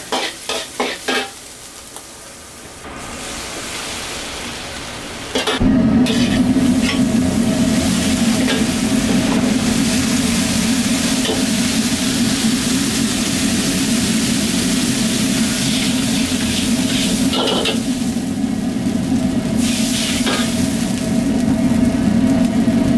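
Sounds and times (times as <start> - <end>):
paste sizzling in hot oil: 0.0 - 21.9
metal ladle scraping wok: 5.3 - 7.1
low hum: 5.6 - 16.9.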